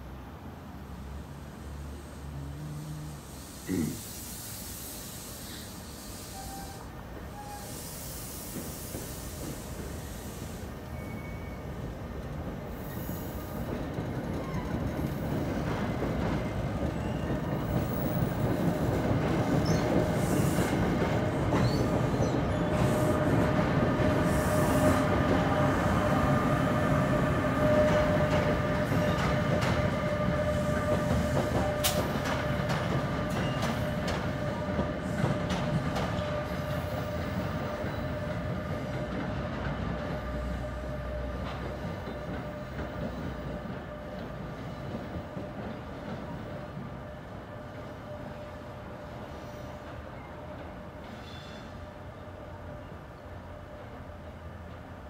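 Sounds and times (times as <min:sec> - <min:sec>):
train wheels rumbling: 0:00.8 - 0:52.9
rail clicks: 0:27.5 - 0:47.9.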